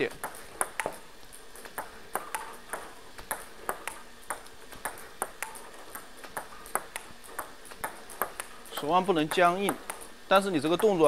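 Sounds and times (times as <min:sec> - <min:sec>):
table tennis ball clicking: 0:00.0 - 0:11.0.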